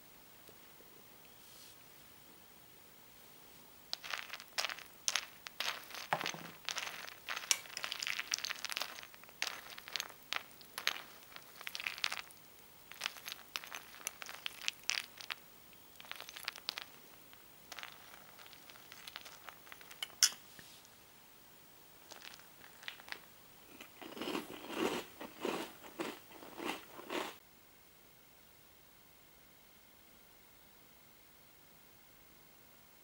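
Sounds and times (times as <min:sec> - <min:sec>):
spoon stirring crunchy cereal: 0:03.9 - 0:20.4, 0:22.0 - 0:27.4.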